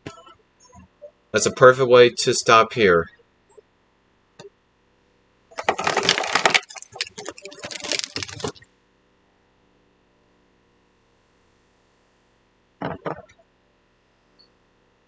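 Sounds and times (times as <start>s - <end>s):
plastic pins clattering: 5.6s - 8.6s.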